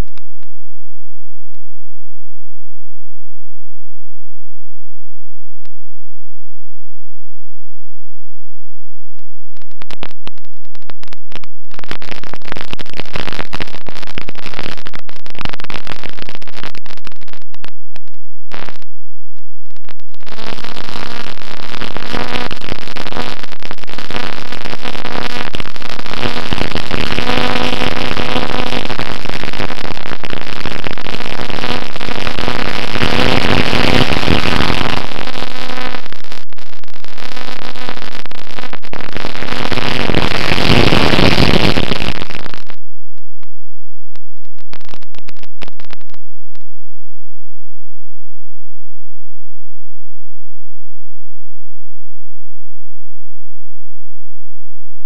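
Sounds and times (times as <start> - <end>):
loud rough wind noise: 9.2 - 46.7.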